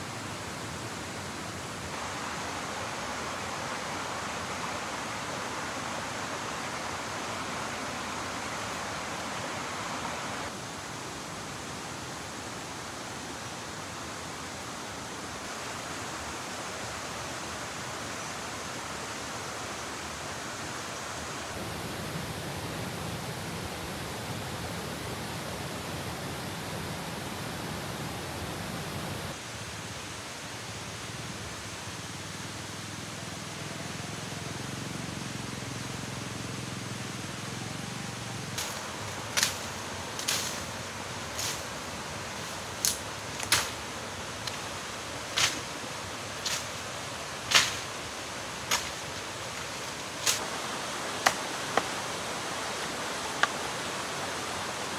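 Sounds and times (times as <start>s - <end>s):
rushing forest background: 0.0s - 54.9s
undergrowth snapping: 38.6s - 40.7s, 42.8s - 43.8s, 45.3s - 45.7s, 46.4s - 46.8s, 47.5s - 47.9s, 48.7s - 50.5s, 51.2s - 51.9s.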